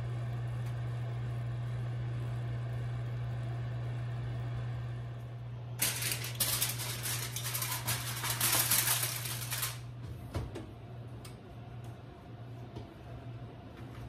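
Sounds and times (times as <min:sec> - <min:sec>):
aluminium foil crinkling: 0:05.8 - 0:09.9.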